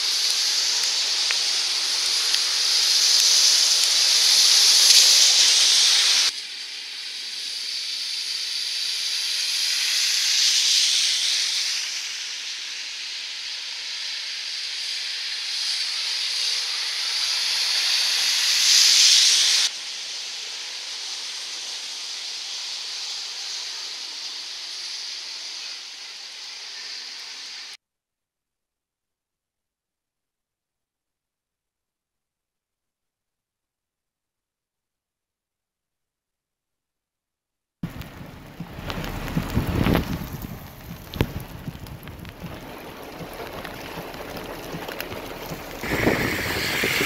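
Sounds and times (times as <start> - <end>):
car tyres swooshing through water: 0.0 - 27.8, 37.8 - 47.0
heavy rain hissing: 0.0 - 27.8, 37.8 - 47.0.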